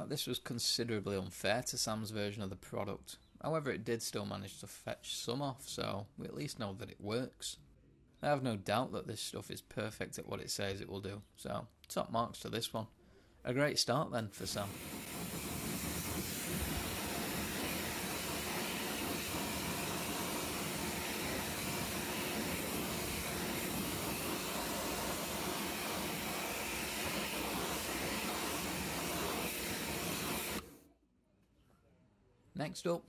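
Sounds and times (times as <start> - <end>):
pressure washer spraying water: 14.4 - 30.8.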